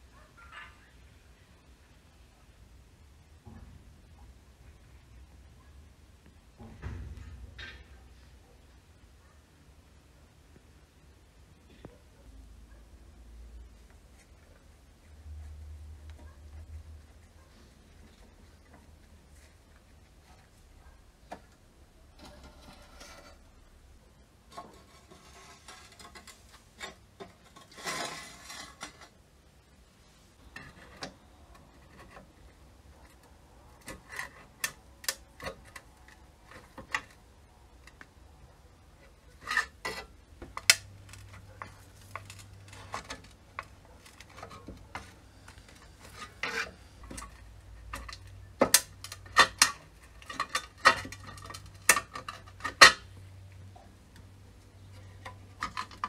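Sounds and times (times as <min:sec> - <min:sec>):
metal parts rubbing and scraping: 0:22.0 - 0:23.7, 0:24.4 - 0:29.2, 0:39.0 - 0:53.1.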